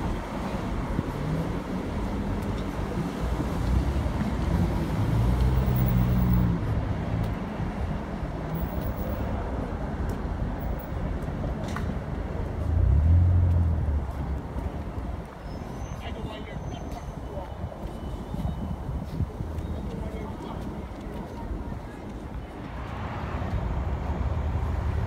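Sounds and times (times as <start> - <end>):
passing vehicles: 0.0 - 25.0
engine hum: 12.5 - 14.5.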